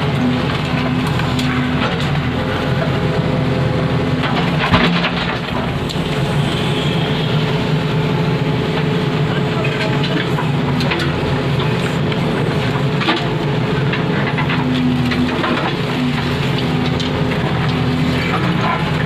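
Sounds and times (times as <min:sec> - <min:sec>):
diesel engine running under load: 0:00.0 - 0:19.0
digger arm clattering on rubble: 0:04.2 - 0:06.2, 0:09.4 - 0:19.0.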